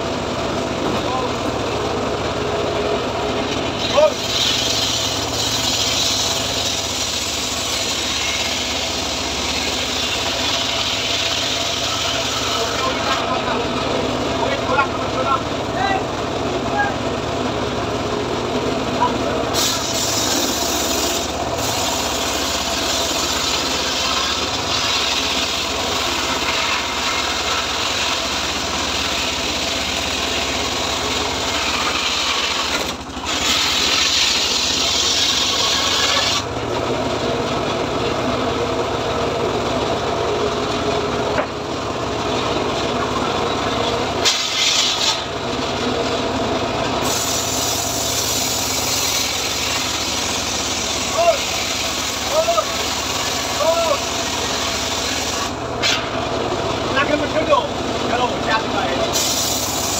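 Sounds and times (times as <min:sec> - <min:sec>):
circular saw cutting wood: 0:03.0 - 0:16.1, 0:18.8 - 0:36.8, 0:42.4 - 0:59.9.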